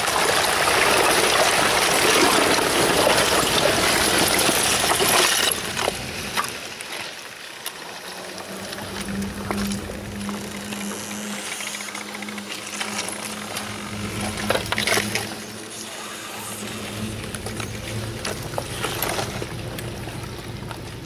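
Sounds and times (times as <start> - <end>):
ice slabs cracking and grinding: 0.0 - 21.0
low engine hum: 8.3 - 21.0.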